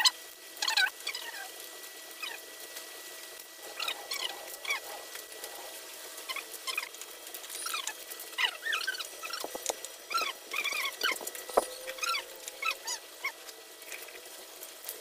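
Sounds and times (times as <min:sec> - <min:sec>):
small animal chirping: 0:06.2 - 0:06.9, 0:07.6 - 0:14.2.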